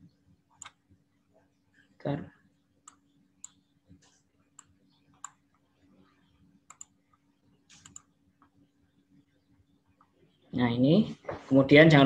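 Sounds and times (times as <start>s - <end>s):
low steady hum: 0.0s - 12.0s
computer mouse clicks: 4.6s - 5.4s, 6.7s - 7.0s, 7.7s - 8.5s.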